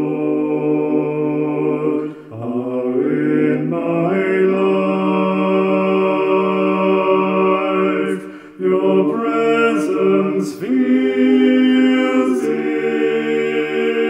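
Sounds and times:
man singing slow worship song: 0:01.0 - 0:05.9, 0:06.8 - 0:11.0.

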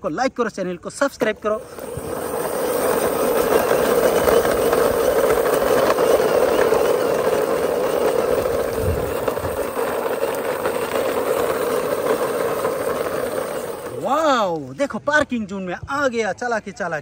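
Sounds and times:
toy wheels grinding on concrete: 0:00.9 - 0:15.3.

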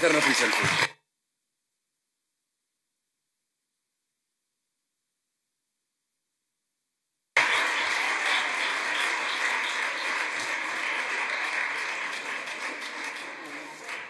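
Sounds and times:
audience applause: 0:00.0 - 0:00.9, 0:07.4 - 0:14.0.

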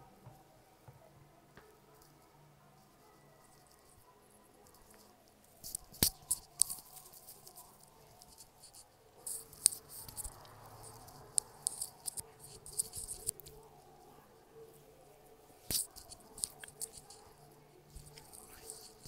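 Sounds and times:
hands rubbing skin: 0:05.6 - 0:13.6.

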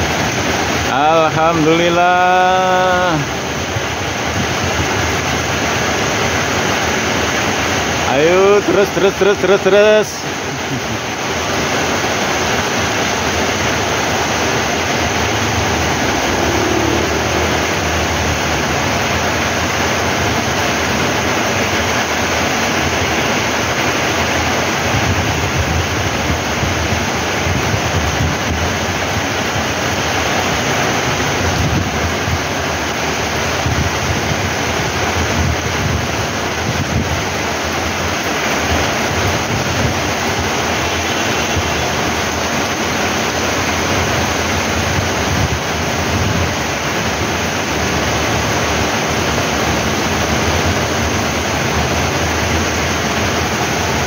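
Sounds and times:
heavy rain pouring: 0:00.0 - 0:54.0
wind buffeting microphone: 0:24.8 - 0:29.8, 0:31.0 - 0:40.7, 0:43.9 - 0:47.5.

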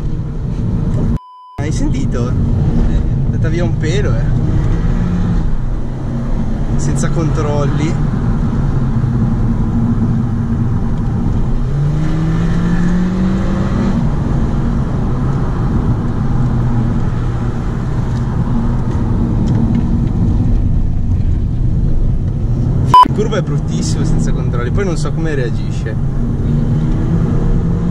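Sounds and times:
tyre and road noise: 0:00.0 - 0:27.9
car engine revving: 0:01.9 - 0:20.5.

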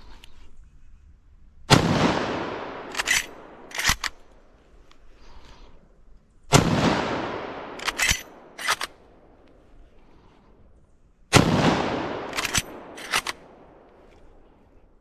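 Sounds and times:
rifle shots echoing: 0:01.7 - 0:04.5, 0:06.5 - 0:09.4, 0:11.3 - 0:14.5
rifle bolt clacking: 0:02.8 - 0:05.0, 0:07.6 - 0:09.6, 0:12.2 - 0:14.3.

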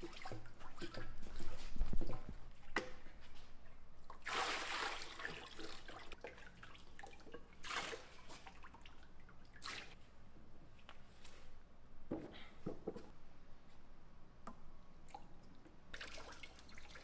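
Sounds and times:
liquid splashing: 0:04.1 - 0:10.0.

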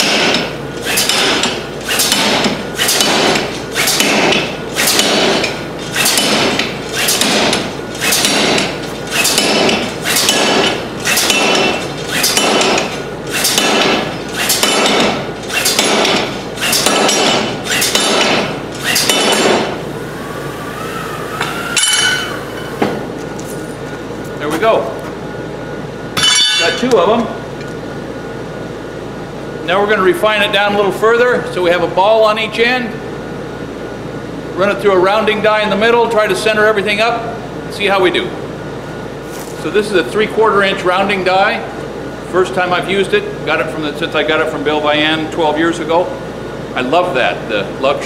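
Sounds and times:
power hammer striking steel: 0:00.0 - 0:23.1, 0:26.2 - 0:26.9.

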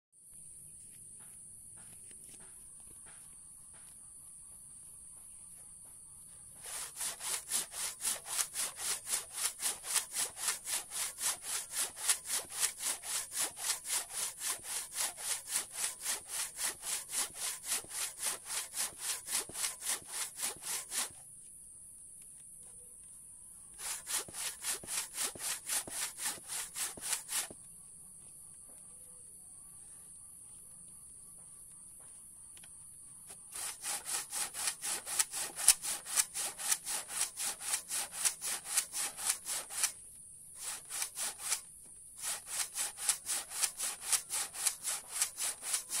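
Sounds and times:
handsaw cutting hard wood: 0:06.6 - 0:21.2, 0:23.8 - 0:27.6, 0:33.5 - 0:40.0, 0:40.6 - 0:46.0.

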